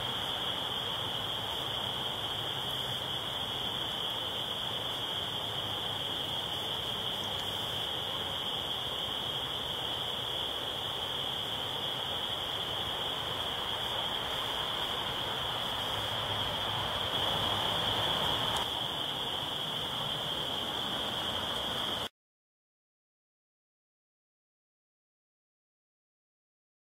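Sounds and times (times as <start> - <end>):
chorus of spring peepers: 0.0 - 22.1.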